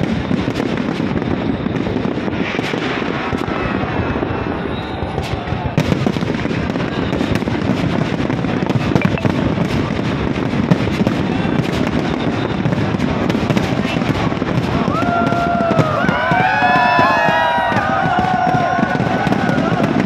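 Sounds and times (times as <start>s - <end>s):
fireworks crackling and popping: 0.0s - 20.0s.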